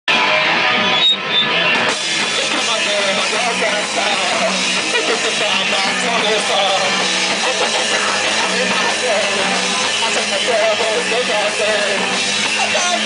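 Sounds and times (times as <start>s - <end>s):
live rock band playing: 0.1s - 13.0s.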